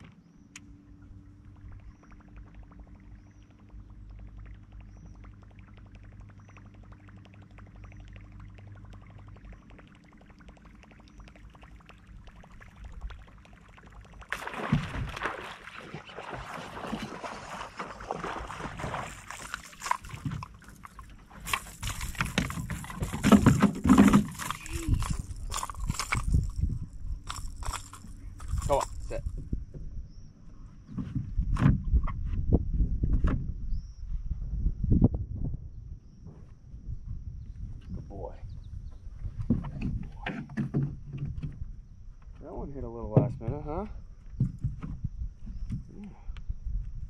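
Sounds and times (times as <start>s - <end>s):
low electric motor hum: 0.0s - 15.4s
fish splashing at water surface: 8.2s - 29.2s.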